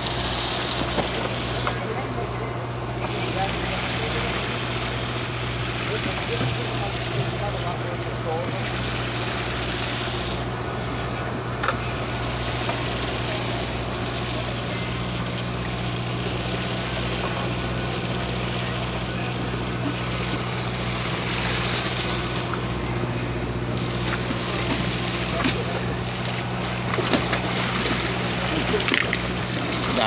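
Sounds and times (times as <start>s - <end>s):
boat engine idling: 0.0s - 30.0s
wind and sea hiss: 8.2s - 10.9s.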